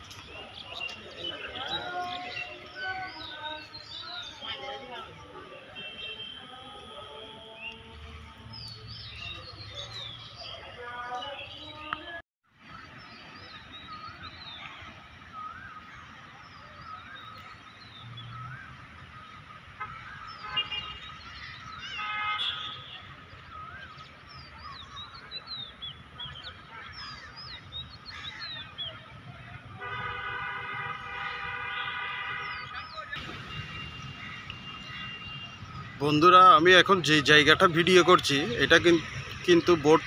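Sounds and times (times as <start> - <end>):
horn honks: 5.6 - 8.2, 19.8 - 21.1, 21.9 - 23.1, 29.6 - 36.0
small birds chirping: 30.9 - 40.0.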